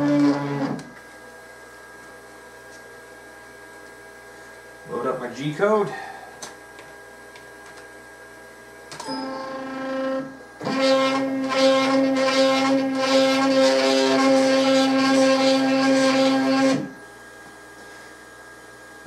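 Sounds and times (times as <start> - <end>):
router motor high-pitched whine: 0.0 - 0.9, 9.0 - 17.0.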